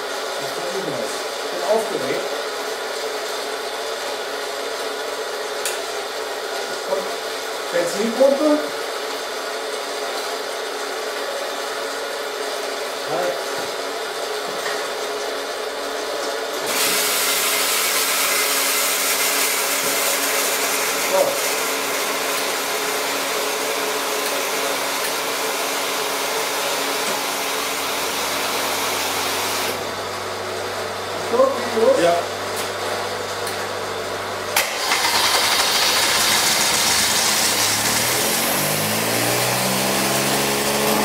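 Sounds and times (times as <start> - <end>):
loud blower rushing: 34.6 - 41.0.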